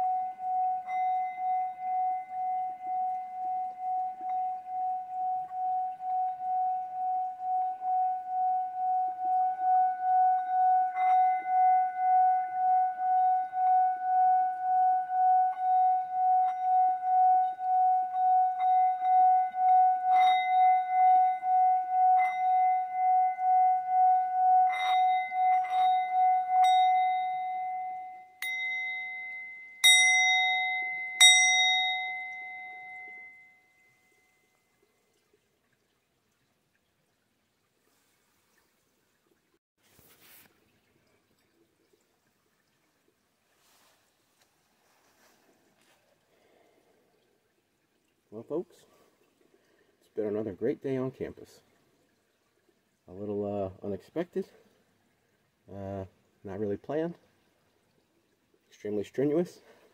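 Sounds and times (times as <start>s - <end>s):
singing bowl struck: 0.0s - 33.7s
singing bowl ringing tone: 0.0s - 34.6s.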